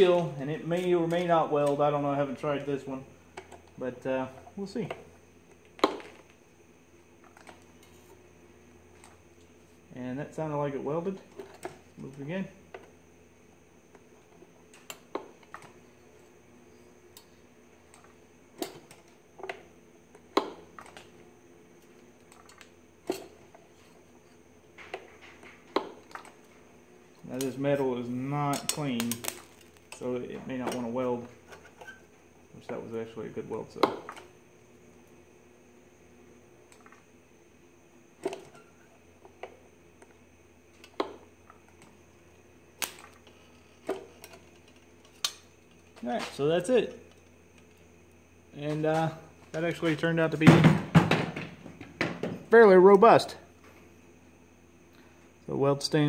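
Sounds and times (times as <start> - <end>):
faint steady hum: 0.0 - 56.0
spot welder snapping: 27.3 - 30.9, 42.7 - 43.2.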